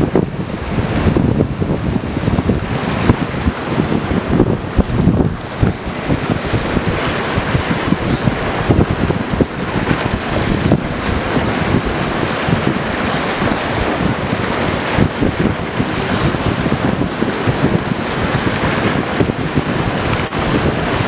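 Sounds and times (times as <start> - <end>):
surf breaking: 0.0 - 21.0
wind buffeting microphone: 0.0 - 21.0.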